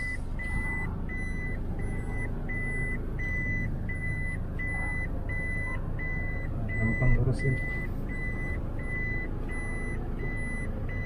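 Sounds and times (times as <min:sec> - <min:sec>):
car engine hum: 0:00.0 - 0:11.0
reverse warning chime beeping: 0:00.0 - 0:11.0.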